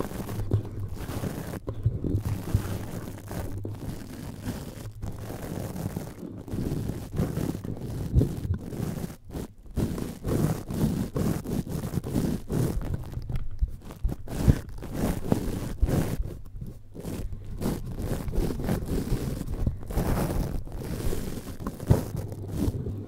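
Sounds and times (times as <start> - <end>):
microphone grille being scratched: 0.0 - 23.0.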